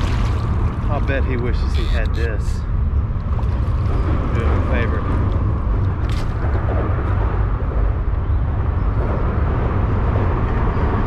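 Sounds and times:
water splashing from tray: 0.0s - 0.9s
low fluttering rumble: 0.0s - 11.0s.

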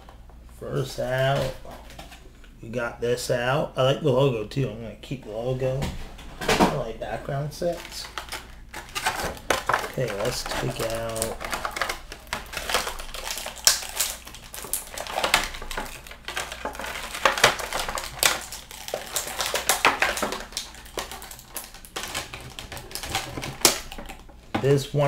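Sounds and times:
plastic packaging clicking and rustling: 0.0s - 2.5s, 7.6s - 25.0s.

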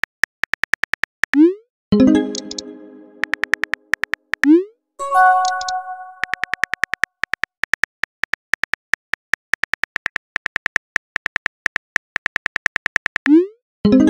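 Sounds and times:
phone chime: 5.0s - 6.6s.

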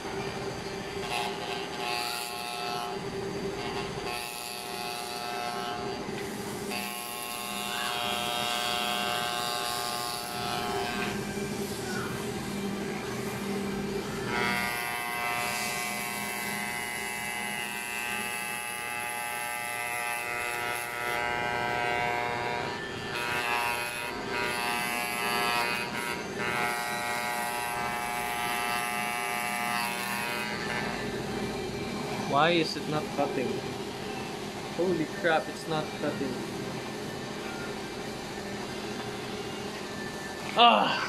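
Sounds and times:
electric hair clippers buzzing: 0.9s - 11.3s, 13.3s - 31.4s.

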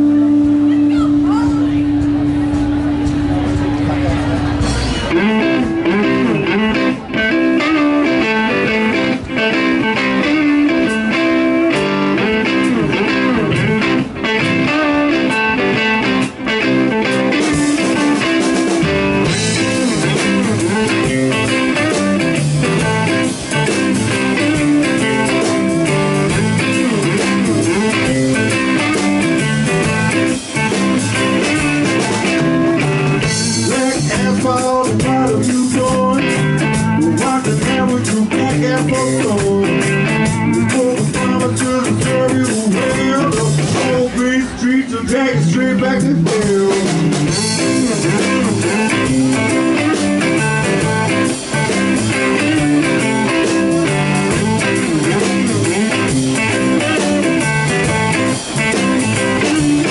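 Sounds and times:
bass guitar: 0.0s - 59.9s
drums: 0.0s - 59.9s
electric guitar: 0.0s - 59.9s.

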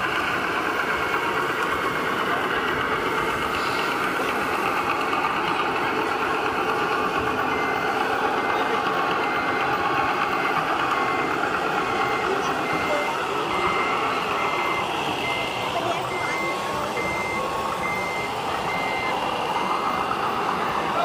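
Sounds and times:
rapid high beeping: 6.6s - 21.0s.

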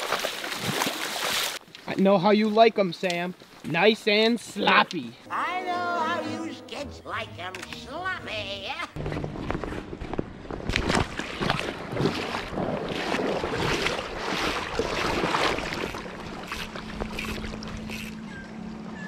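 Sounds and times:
rushing river: 10.9s - 19.0s
fishing rod handling rustle: 15.8s - 18.2s.

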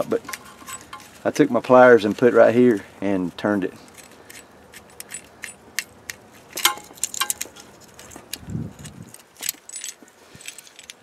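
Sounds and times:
metal parts clicking and clinking: 0.0s - 1.2s, 3.8s - 11.0s.

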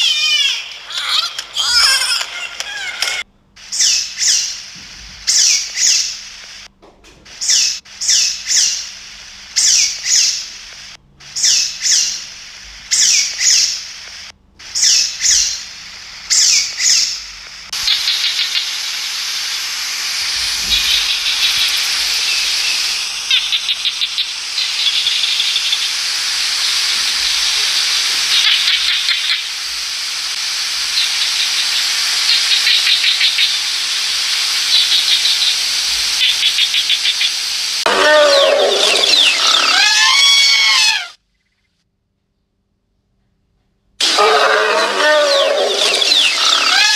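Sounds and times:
sea otter squealing: 0.0s - 3.2s, 37.9s - 41.2s, 44.0s - 46.9s
steady hiss: 0.0s - 41.2s, 44.0s - 46.9s
fast high chirping: 14.7s - 29.6s, 30.9s - 41.2s.

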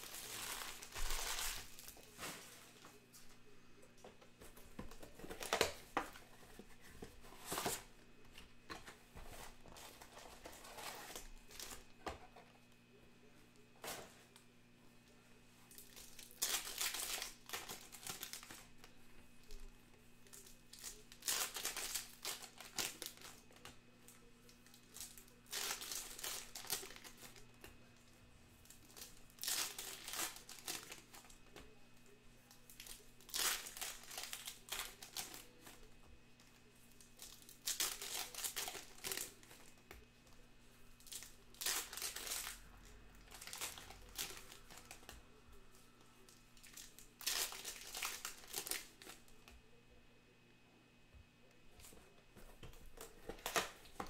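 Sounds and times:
foil wrappers tearing and crinkling: 0.0s - 2.6s, 15.7s - 18.8s, 20.2s - 23.7s, 24.6s - 27.4s, 28.6s - 31.6s, 32.7s - 35.8s, 37.1s - 39.7s, 41.0s - 42.6s, 43.2s - 45.1s, 46.6s - 49.2s.

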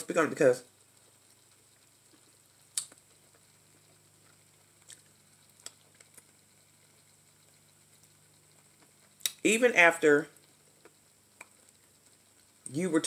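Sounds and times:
wet mouth smacks: 2.7s - 3.0s.

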